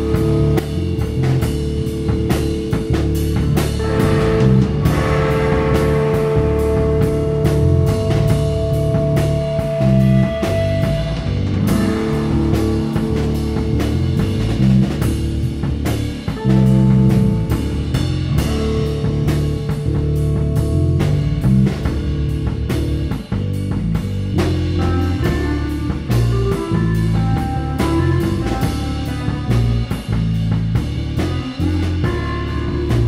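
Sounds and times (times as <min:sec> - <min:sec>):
electric guitar: 0:00.0 - 0:23.8, 0:24.4 - 0:33.0
bass guitar: 0:00.0 - 0:33.0
rock drum beat: 0:00.0 - 0:33.0.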